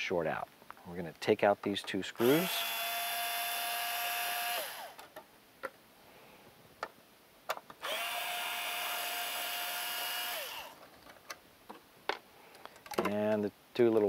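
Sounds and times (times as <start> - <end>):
electric screwdriver motor whining: 2.2 - 5.0, 7.8 - 10.8.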